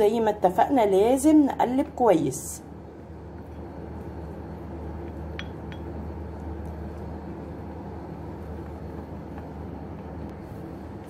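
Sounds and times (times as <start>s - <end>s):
low background hum: 0.0s - 11.0s
spoon clinking against bowl: 5.4s - 5.9s.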